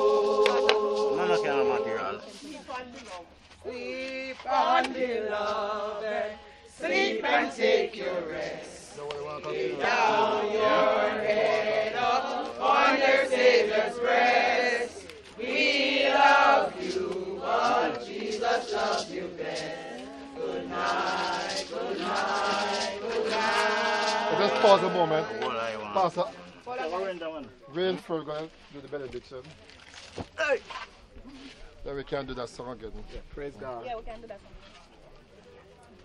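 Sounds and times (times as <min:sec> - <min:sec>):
group singing a hymn: 0:00.0 - 0:02.4, 0:03.6 - 0:25.8.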